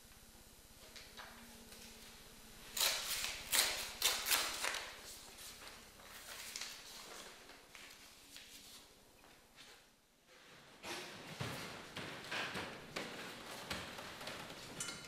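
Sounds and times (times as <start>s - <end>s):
books and paper rustling: 2.8s - 9.9s.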